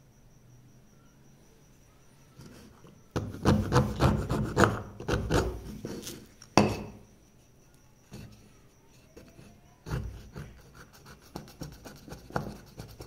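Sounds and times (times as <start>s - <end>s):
chisel scraping wood: 2.4s - 6.3s.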